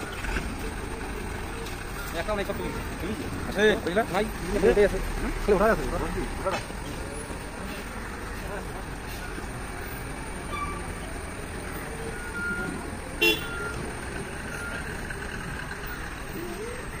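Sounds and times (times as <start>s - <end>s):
truck diesel engine rumble: 0.0s - 17.0s
truck horn toot: 13.2s - 13.8s.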